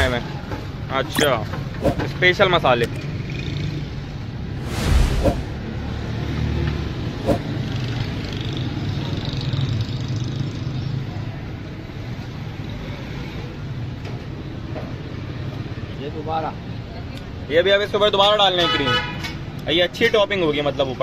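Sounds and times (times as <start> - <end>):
street traffic hum: 0.0 - 21.0
loud rush: 4.6 - 6.1.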